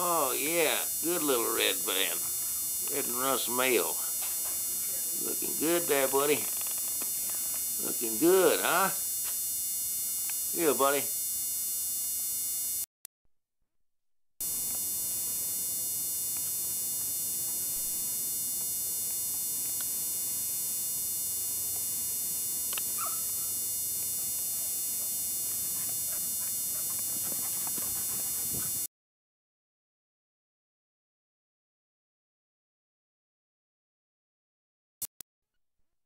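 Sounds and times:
videotape hiss: 0.0s - 11.1s, 14.4s - 28.8s
electrical mains hum: 0.0s - 12.8s, 14.4s - 28.9s
dog yelping: 23.0s - 23.5s.

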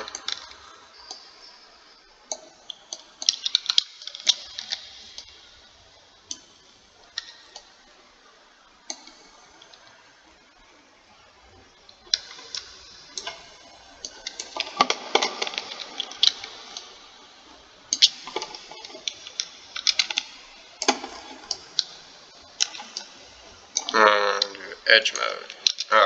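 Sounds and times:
mouse buttons clicking: 8.9s - 9.8s.

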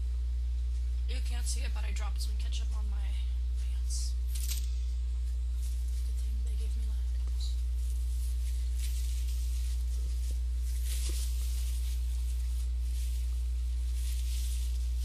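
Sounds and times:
low electrical hum: 0.0s - 15.0s
paper napkin rustling: 5.2s - 15.0s.

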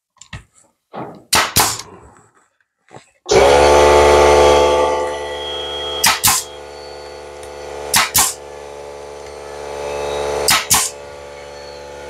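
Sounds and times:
nail gun firing: 1.0s - 1.9s, 6.0s - 6.5s, 7.9s - 8.4s, 10.5s - 11.0s
steady hum: 3.3s - 12.0s.

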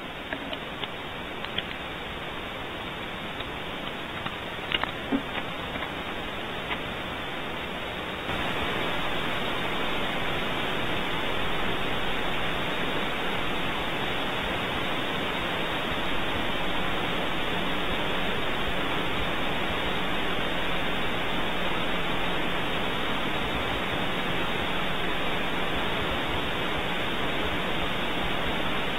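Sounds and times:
microphone static hiss: 0.0s - 28.9s.

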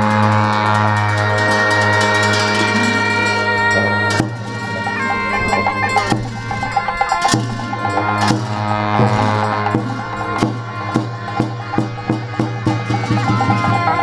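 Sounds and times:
frame drum beats: 0.0s - 14.0s
reedy shawm notes: 0.0s - 14.0s
ringing cymbal crash: 1.5s - 14.0s
low drone: 1.6s - 12.6s.

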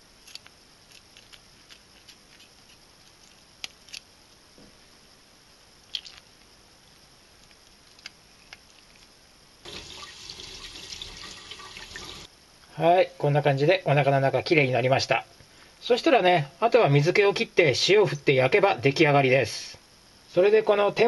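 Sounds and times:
faint wet ticks and drips: 5.8s - 6.5s
tap water running into sink: 9.7s - 12.3s.

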